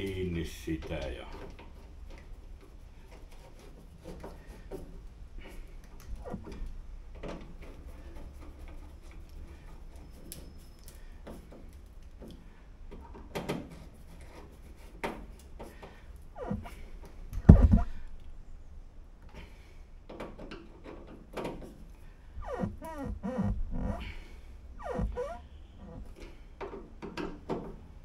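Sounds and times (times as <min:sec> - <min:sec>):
low steady hum: 0:16.2 - 0:19.9
louder knocks: 0:17.5 - 0:18.0.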